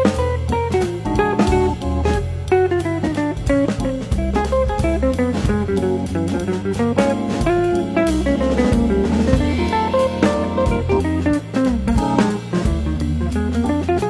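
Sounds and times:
steady drum beat: 0:00.0 - 0:14.0
melodic notes: 0:06.3 - 0:12.7.

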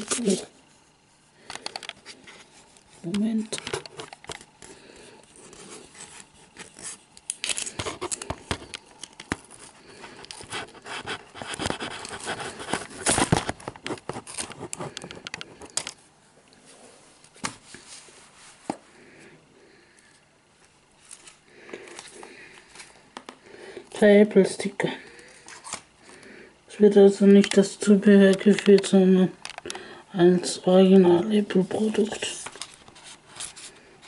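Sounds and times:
cardboard box rustling and scraping: 0:09.5 - 0:15.3.

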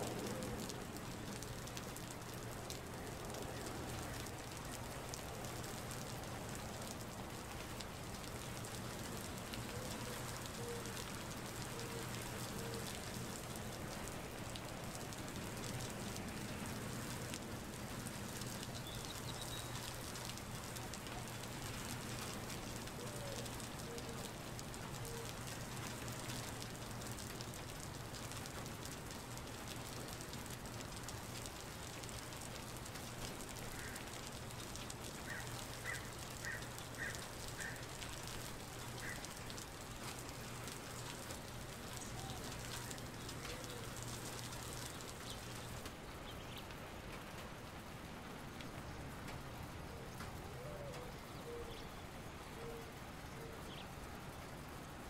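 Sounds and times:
rain on wet concrete: 0:00.0 - 0:55.0
low bird calls: 0:33.7 - 0:34.2, 0:35.2 - 0:39.6, 0:50.0 - 0:54.0.

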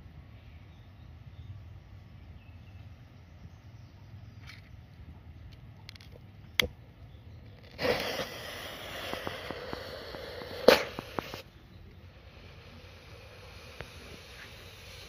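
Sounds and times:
small crackles: 0:07.4 - 0:11.5
sharp pop: 0:07.6 - 0:11.5
smoke bomb hissing: 0:07.6 - 0:15.0.

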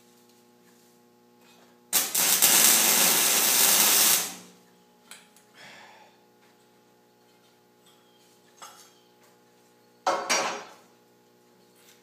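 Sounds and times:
welder arc crackling: 0:01.9 - 0:04.6.

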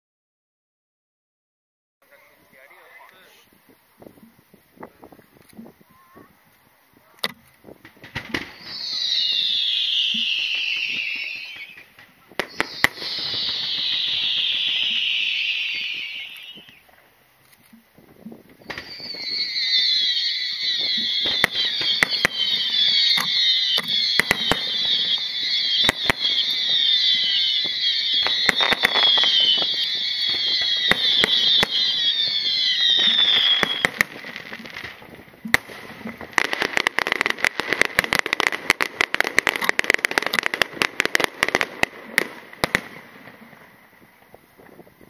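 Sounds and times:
shrill whistling fireworks: 0:02.1 - 0:45.0
rapid firework crackling: 0:07.6 - 0:45.0
firework shell reports: 0:19.6 - 0:34.2.

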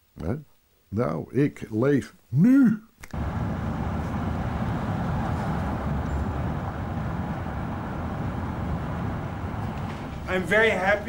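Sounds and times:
car engine and tyre noise: 0:03.1 - 0:10.3.

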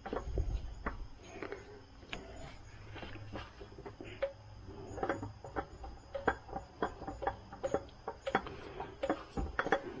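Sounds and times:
oil filter clicking and rubbing: 0:02.9 - 0:10.0.

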